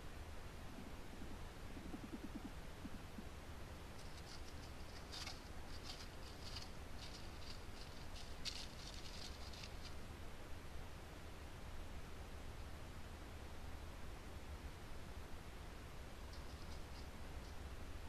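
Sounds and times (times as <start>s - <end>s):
animal walking over dry leaves: 3.9s - 10.1s.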